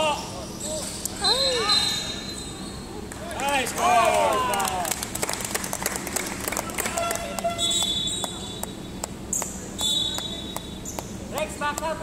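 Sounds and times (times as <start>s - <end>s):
shoe squeaks: 0.4s - 3.0s, 7.0s - 8.6s.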